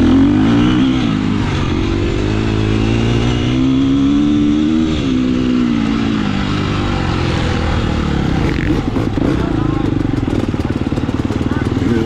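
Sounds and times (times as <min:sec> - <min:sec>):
racing engine revving: 0:00.0 - 0:12.0.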